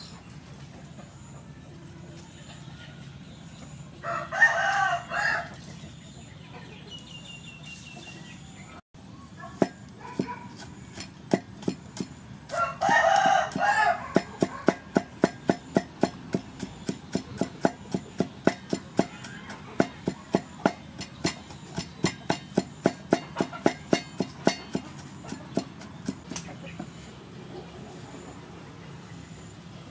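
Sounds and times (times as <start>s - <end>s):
rooster crowing: 4.0s - 5.6s, 12.5s - 14.8s
cleaver chopping on wooden block: 9.6s - 26.5s.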